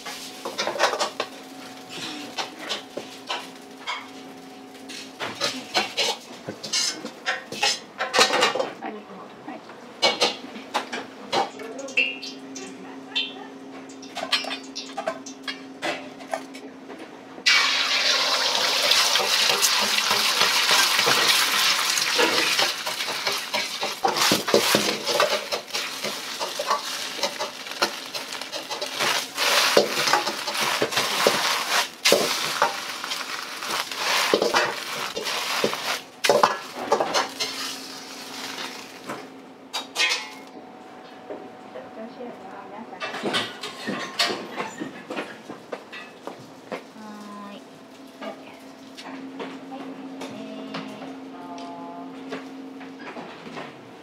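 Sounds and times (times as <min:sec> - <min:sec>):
egg sizzling in wok: 0:17.5 - 0:39.2
ladle scraping wok: 0:17.6 - 0:39.2.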